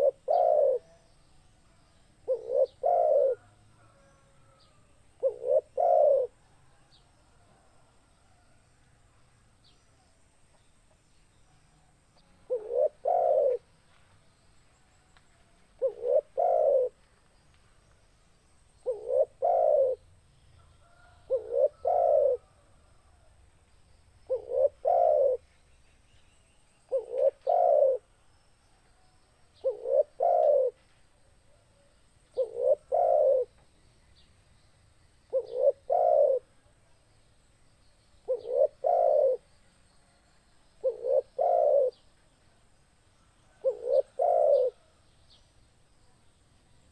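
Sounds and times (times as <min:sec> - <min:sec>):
dove cooing: 0:00.0 - 0:01.0, 0:02.2 - 0:04.6, 0:05.2 - 0:06.4, 0:12.5 - 0:13.7, 0:15.8 - 0:17.0, 0:18.8 - 0:20.0, 0:20.8 - 0:22.6, 0:24.3 - 0:25.4, 0:26.9 - 0:28.1, 0:29.6 - 0:30.8, 0:32.3 - 0:33.6, 0:35.3 - 0:36.5, 0:38.3 - 0:39.5, 0:40.8 - 0:42.0, 0:43.5 - 0:44.9.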